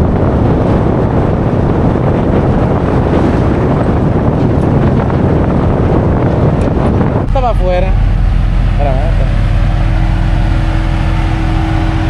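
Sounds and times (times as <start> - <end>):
off-road vehicle rumble: 0.0 - 12.0
wind rushing over microphone: 0.0 - 12.0.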